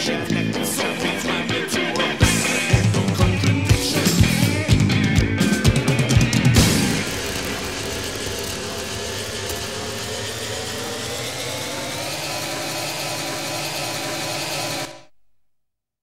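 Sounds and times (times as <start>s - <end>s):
sustained droning hum: 6.6s - 13.4s.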